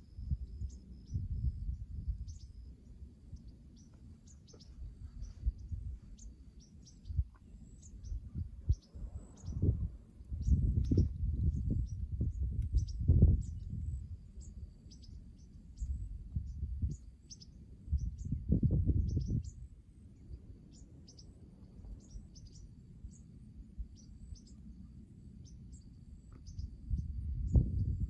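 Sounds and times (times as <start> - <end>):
wind gusts on microphone: 0.0 - 24.4, 26.4 - 28.0
insect whine: 0.0 - 28.0
birds chirping: 0.6 - 19.6, 20.2 - 23.3.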